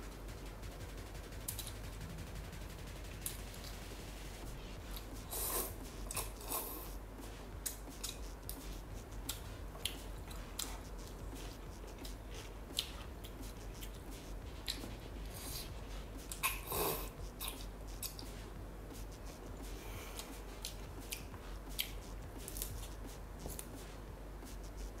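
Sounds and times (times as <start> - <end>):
wet chewing: 7.6 - 23.8.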